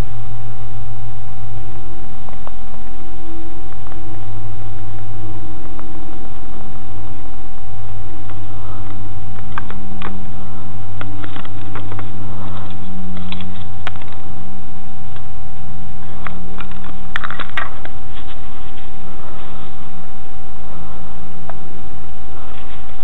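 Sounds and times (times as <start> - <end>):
electrical hum with high whine: 0.0 - 23.0
small clicks and scrapes: 11.0 - 14.2, 16.2 - 19.7.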